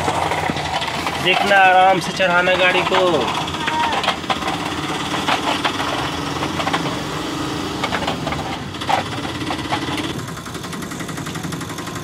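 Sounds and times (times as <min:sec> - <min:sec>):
small toy motor running: 0:02.3 - 0:04.9.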